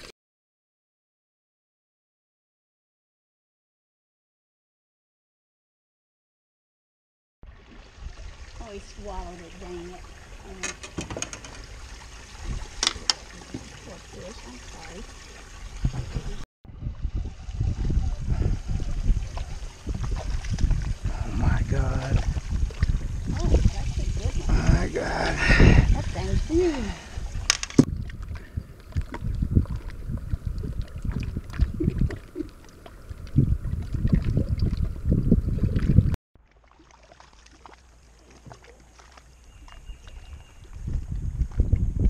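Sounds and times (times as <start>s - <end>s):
water lapping against hull: 7.4s - 42.0s
wind rumbling on microphone: 7.5s - 36.2s, 39.6s - 42.0s.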